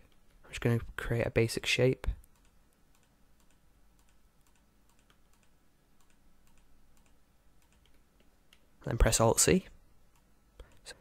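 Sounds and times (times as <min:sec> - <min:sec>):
computer mouse clicking: 0:02.2 - 0:08.7, 0:10.1 - 0:10.9.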